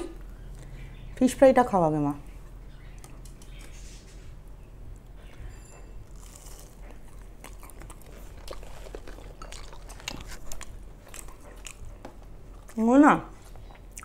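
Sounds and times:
crunching and chewing fried fish: 5.4 - 12.8.

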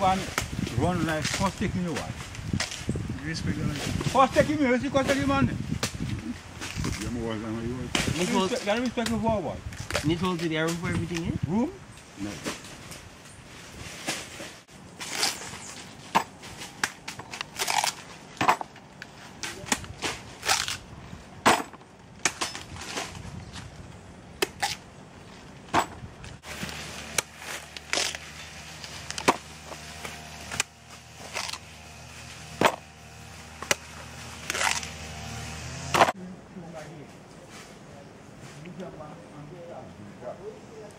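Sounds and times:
machete chopping pods: 0.0 - 2.9, 15.0 - 18.8, 19.4 - 23.1, 24.4 - 24.8, 25.7 - 31.7, 32.4 - 32.9, 33.5 - 36.2.

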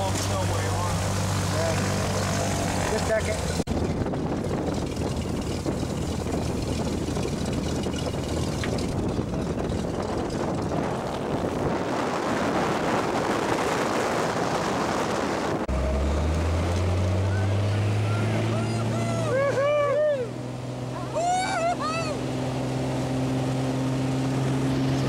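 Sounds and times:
propeller plane engine drone: 0.0 - 25.0
rushing wind noise: 1.0 - 16.6.

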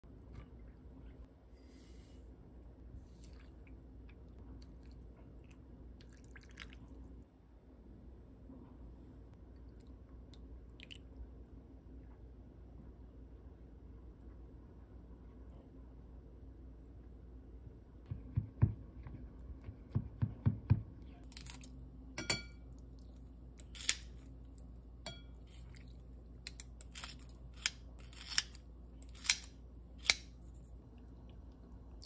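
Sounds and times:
scissors snipping: 26.5 - 30.3.

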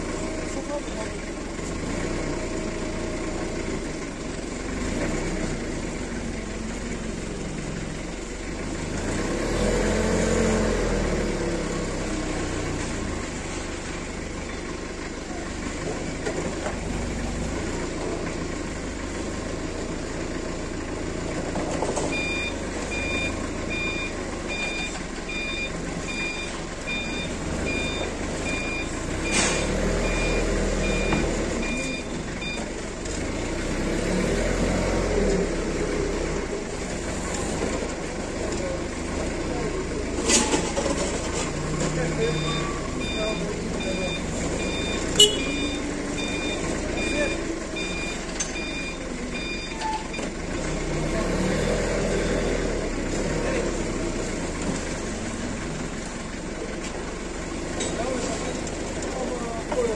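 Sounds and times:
forklift engine running: 0.0 - 59.9
reversing alarm beeps: 22.1 - 32.7, 42.2 - 50.3.

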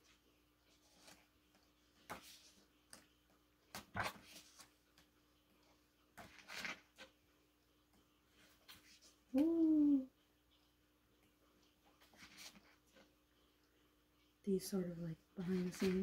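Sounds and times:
pages turning: 0.7 - 3.1, 3.7 - 5.1, 6.2 - 7.2, 12.0 - 12.8, 15.4 - 16.0.

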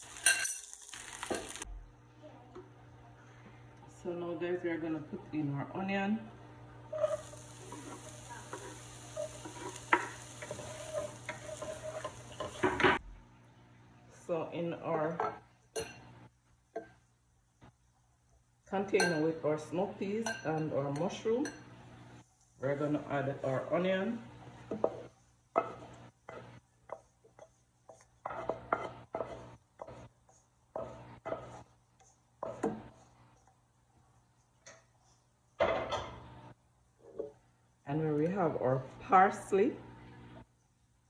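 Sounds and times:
spatula scraping frying pan: 0.0 - 1.7, 6.9 - 13.0, 24.8 - 31.8
onion sizzling in oil: 0.0 - 1.8, 6.8 - 13.0.

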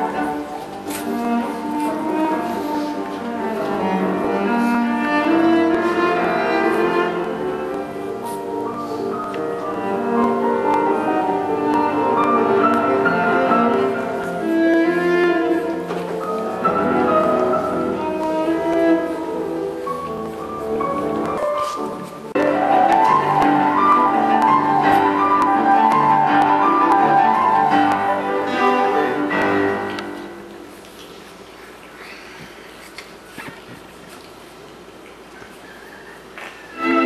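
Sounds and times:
bowed strings: 0.0 - 21.3, 22.3 - 30.6
piano: 0.0 - 37.0.

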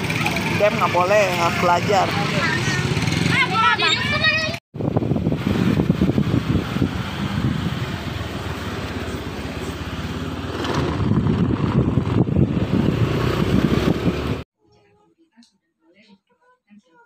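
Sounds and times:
scooter engine running: 0.0 - 4.2, 4.8 - 14.4
wind buffeting on microphone: 4.8 - 14.4.

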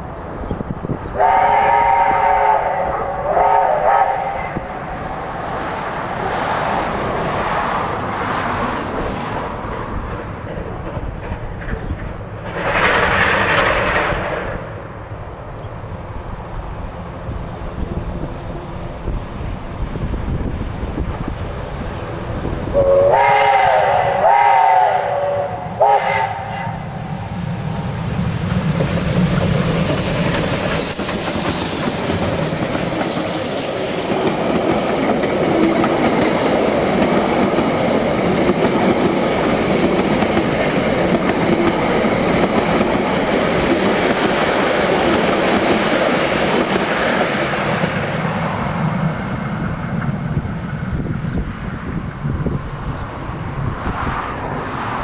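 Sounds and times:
train rolling past: 0.0 - 55.0
steam locomotive whistle: 1.2 - 4.7, 22.7 - 27.3.

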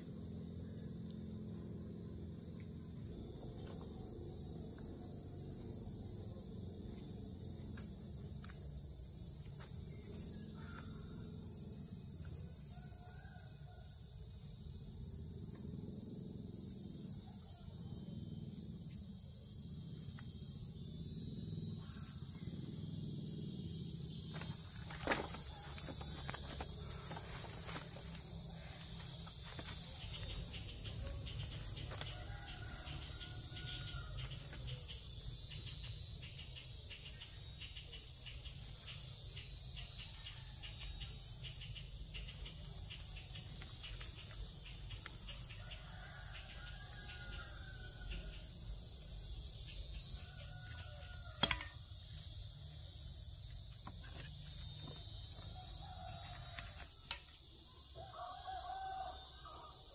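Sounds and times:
crickets chirping: 0.0 - 59.9.

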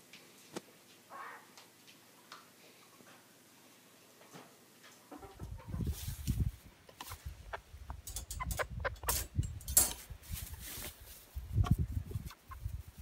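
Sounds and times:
hens clucking: 5.1 - 9.4, 10.4 - 13.0
wind rumble on microphone: 5.2 - 13.0.

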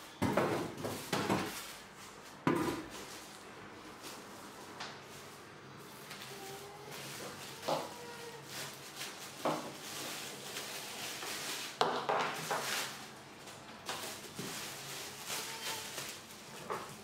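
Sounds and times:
plastic packaging crinkling: 5.2 - 17.0.

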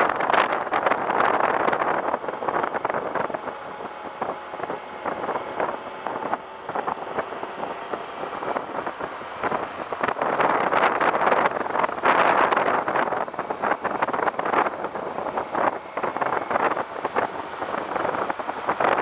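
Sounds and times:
motorcycle engine running: 0.0 - 19.0
wind buffeting microphone: 0.0 - 19.0.

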